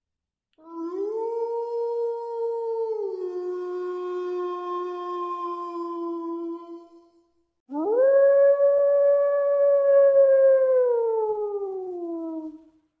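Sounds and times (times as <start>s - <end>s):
wolf howling: 7.7s - 12.6s.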